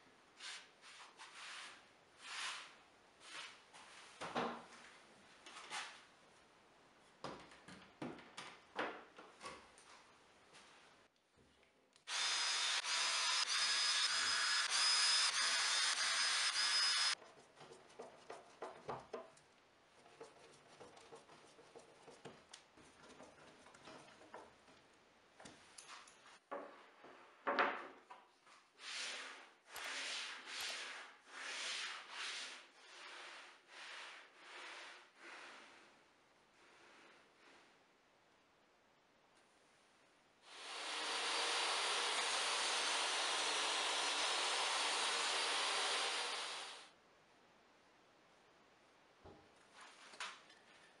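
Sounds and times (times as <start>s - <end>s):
cordless drill boring into wood: 12.1s - 17.2s, 40.5s - 46.8s
rubbing strokes: 28.8s - 36.0s.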